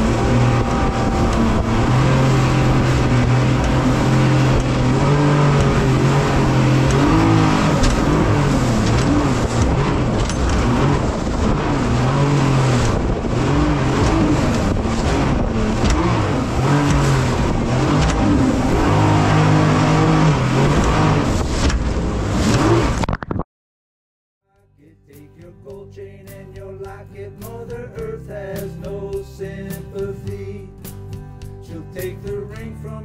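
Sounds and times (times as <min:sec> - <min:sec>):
jet boat engine revving: 0:00.0 - 0:23.1
rushing water and spray: 0:00.0 - 0:23.1.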